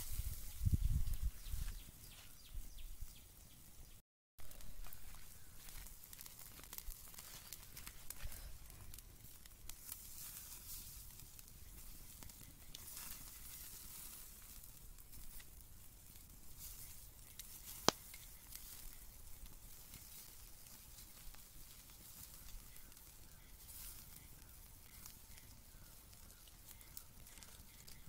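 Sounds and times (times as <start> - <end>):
chicken sizzling on a grill: 0.0 - 28.0
small pops: 17.2 - 19.0.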